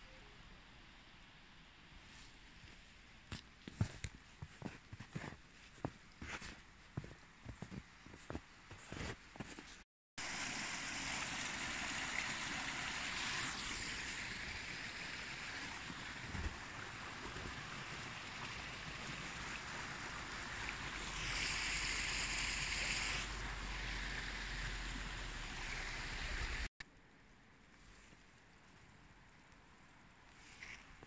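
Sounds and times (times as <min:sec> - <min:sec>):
water rushing: 0:10.2 - 0:26.7.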